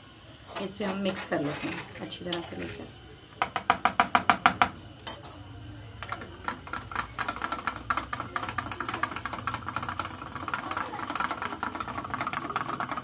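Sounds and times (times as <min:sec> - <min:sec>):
whisk beating yogurt: 0:06.0 - 0:13.0.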